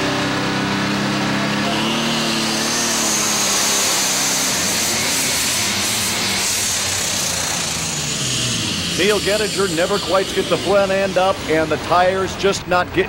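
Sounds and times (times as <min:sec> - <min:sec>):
tractor engine running flat out: 0:00.0 - 0:13.0.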